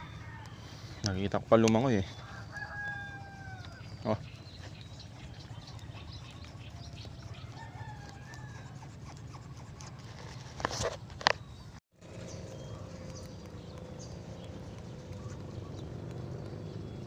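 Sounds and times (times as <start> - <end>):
roosters crowing: 0.0 - 1.0, 1.9 - 9.5.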